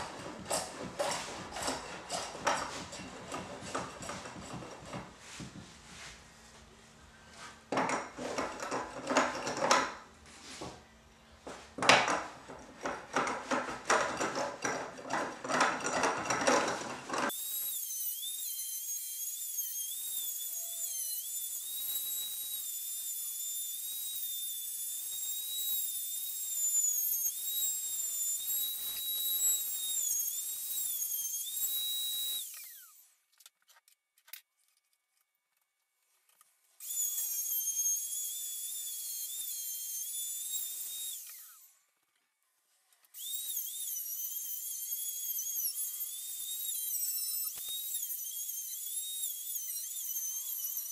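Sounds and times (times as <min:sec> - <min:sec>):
hand plane shaving wood: 0:00.0 - 0:06.1
router whining cutting wood: 0:13.9 - 0:33.1, 0:36.8 - 0:41.8, 0:43.1 - 0:50.9.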